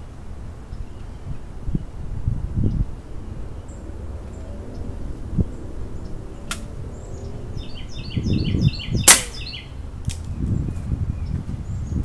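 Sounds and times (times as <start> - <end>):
bird chirping: 3.5 - 12.0
pellet gun crack: 6.5 - 6.7, 9.1 - 9.5.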